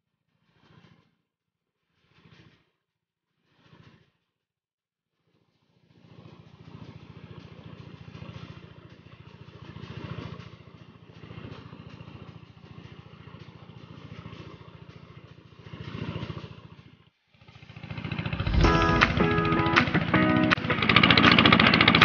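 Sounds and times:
small engine running: 5.5s - 22.0s.

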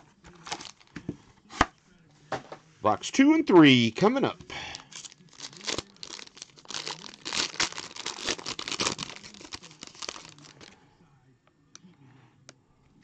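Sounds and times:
foil wrapper tearing and crinkling: 0.4s - 0.9s, 4.8s - 10.8s.

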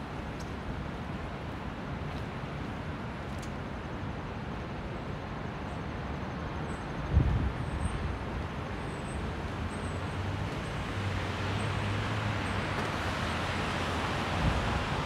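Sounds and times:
city traffic: 0.0s - 15.0s.

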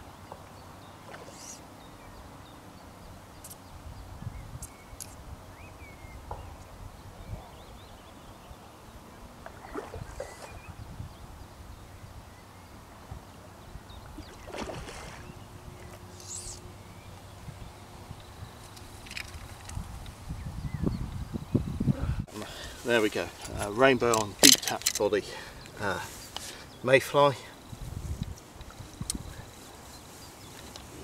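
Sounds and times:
bird chirps: 13.9s - 17.2s
fish splashing in water: 14.3s - 15.3s.

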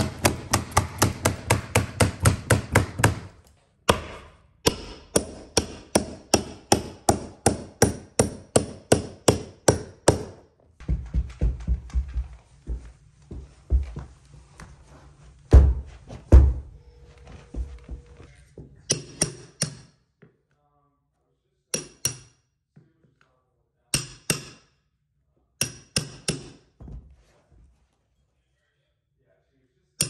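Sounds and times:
heavy knocks and thuds: 10.1s - 14.1s, 15.5s - 16.8s.

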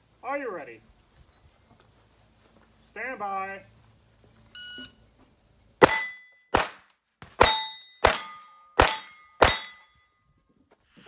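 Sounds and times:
steel target plate clanging: 5.8s - 6.4s, 7.4s - 10.0s
pistol shots: 5.8s - 9.8s.

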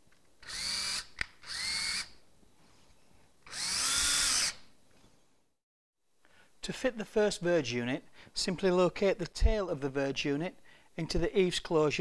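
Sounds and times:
power drill whirring: 0.4s - 2.2s, 3.4s - 4.7s.

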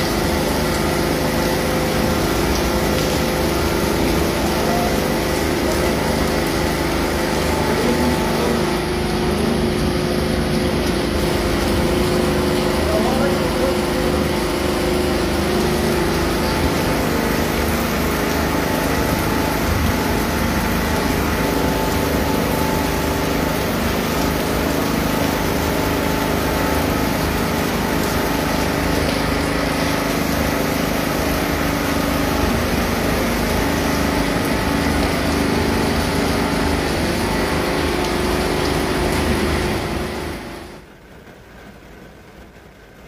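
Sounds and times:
motor humming: 0.0s - 40.7s
steady rain: 0.0s - 43.0s.

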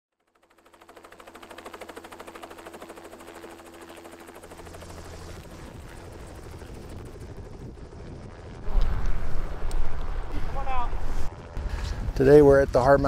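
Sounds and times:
helicopter rotor blades thudding: 0.2s - 12.2s
heavy low rumble: 7.4s - 13.0s.

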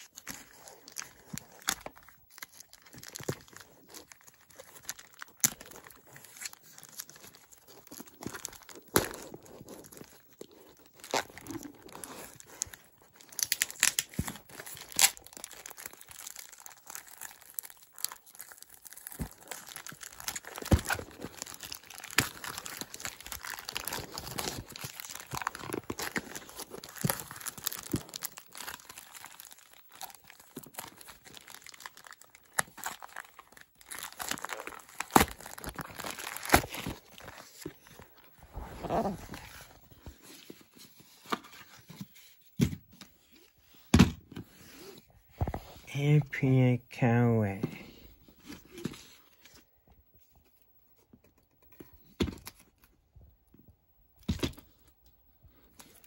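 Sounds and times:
plastic bag tearing and crinkling: 0.0s - 39.9s
cardboard packaging being opened: 0.0s - 43.6s.

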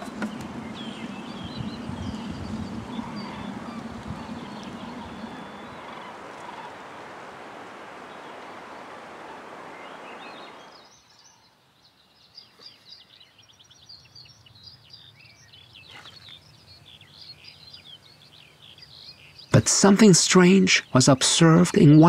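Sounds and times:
wind noise: 0.0s - 10.7s
small birds chirping: 0.0s - 22.0s.

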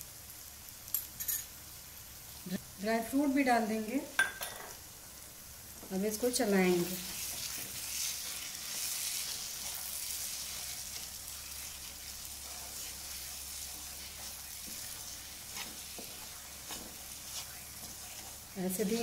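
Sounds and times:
food sizzling in oil: 0.0s - 19.0s
spatula scraping pan: 6.8s - 19.0s.

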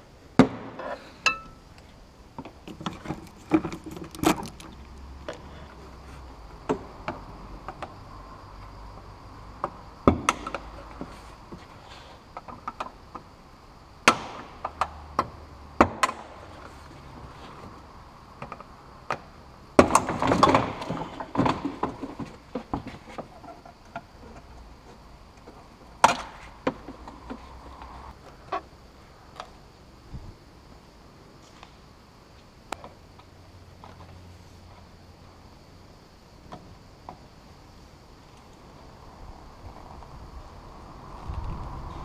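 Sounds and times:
clattering and rubbing: 2.7s - 4.8s.

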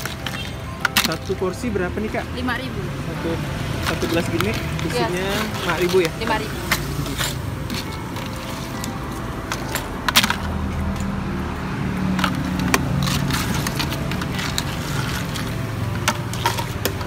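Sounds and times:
plastic scoop digging ice: 0.0s - 1.6s, 3.7s - 10.6s, 12.2s - 17.0s
street traffic hum: 0.0s - 17.0s.

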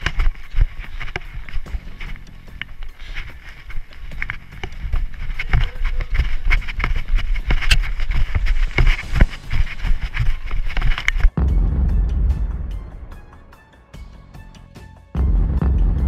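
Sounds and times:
running footsteps on pavement: 0.0s - 11.4s.

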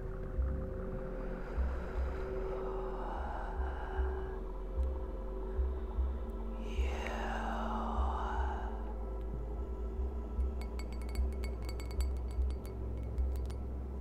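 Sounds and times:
ambient electronic music: 0.0s - 14.0s
light glassy clinks: 10.4s - 13.7s.

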